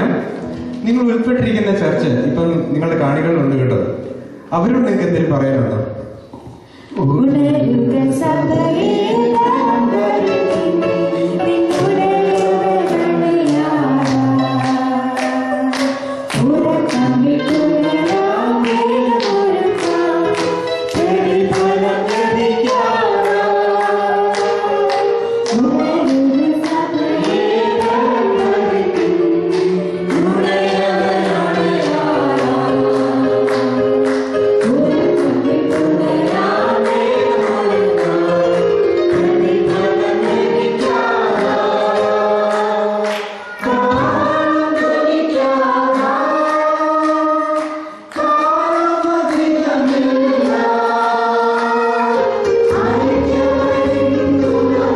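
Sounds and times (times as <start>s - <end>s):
group singing gospel song: 6.4s - 54.9s.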